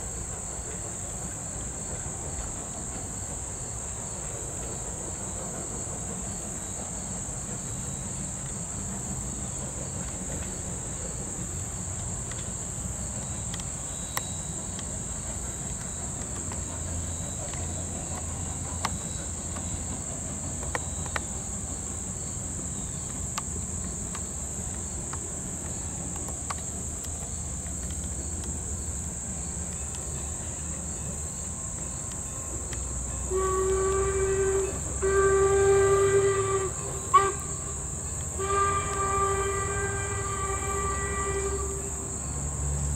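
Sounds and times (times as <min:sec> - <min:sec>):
insects droning: 0:00.0 - 0:42.9
steam train rumbling: 0:00.0 - 0:42.9
steam locomotive whistle: 0:32.9 - 0:42.8.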